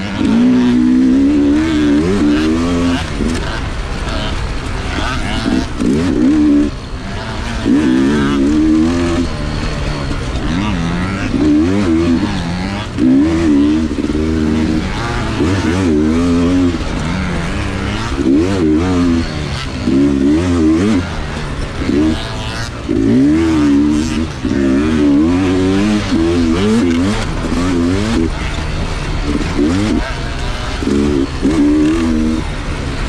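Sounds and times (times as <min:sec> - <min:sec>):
dirt bike engine revving: 0:00.0 - 0:33.0.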